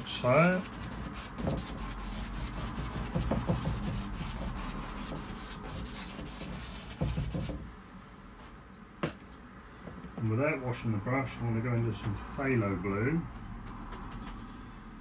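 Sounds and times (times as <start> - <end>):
bristle brush scrubbing canvas: 0.0 - 7.6.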